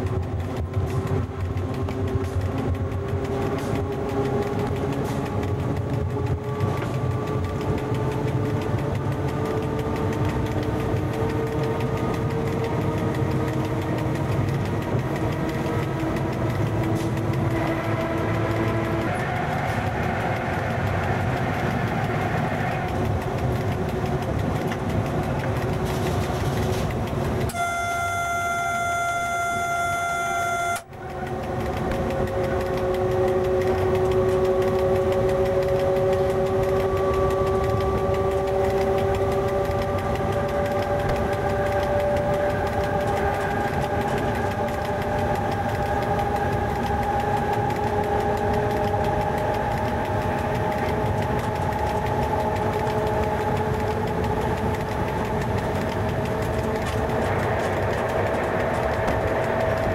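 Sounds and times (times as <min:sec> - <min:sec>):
locomotive rumble and whine: 0:00.0 - 0:59.9
locomotive horn: 0:27.4 - 0:35.7.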